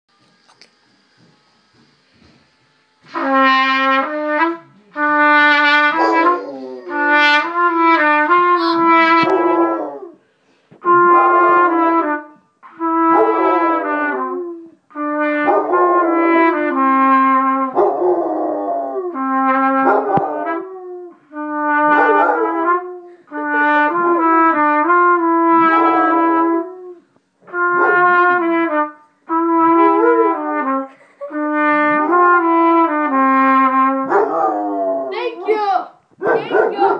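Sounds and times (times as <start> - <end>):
trumpet held notes: 3.0 - 10.1, 10.7 - 17.9, 19.0 - 34.5
dog howling: 6.0 - 7.1, 34.1 - 35.4, 36.2 - 36.9.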